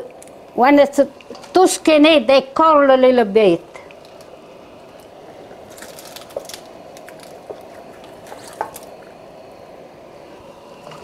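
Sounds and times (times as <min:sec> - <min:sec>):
wet stalks rustling and squishing: 0:05.6 - 0:09.1.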